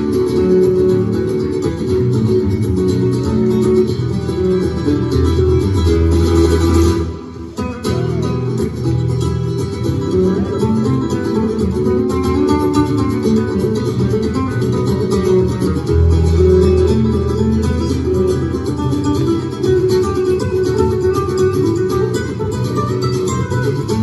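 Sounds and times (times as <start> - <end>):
acoustic guitar duet: 0.0 - 24.0.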